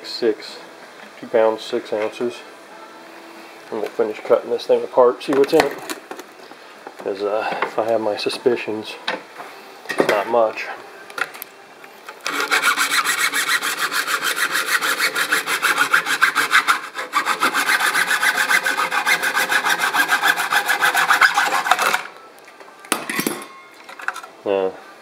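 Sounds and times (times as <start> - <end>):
hacksaw sawing: 12.2 - 22.1.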